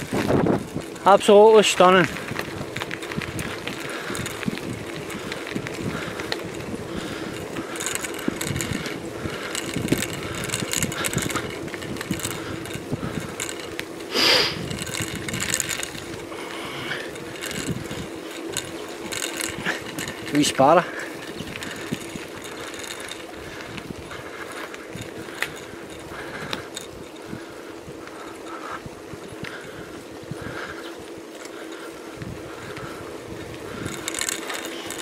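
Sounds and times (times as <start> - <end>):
wind on microphone: 0.0 - 1.0, 2.1 - 13.6, 14.2 - 20.3
bicycle tyres humming on tarmac: 0.0 - 35.0
bike rattling: 0.0 - 35.0.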